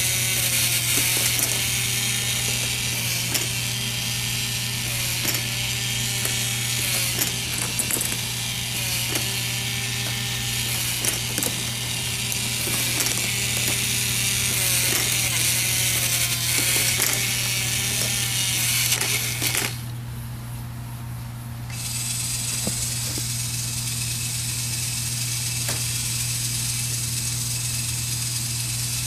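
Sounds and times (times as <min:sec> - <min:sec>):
plastic gears clicking and rattling: 0:00.0 - 0:19.8
steady low hum: 0:00.0 - 0:29.0.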